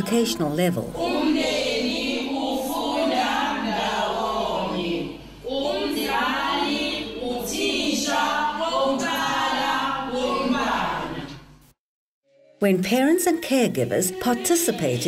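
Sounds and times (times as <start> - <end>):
choir singing: 0.9 - 11.4.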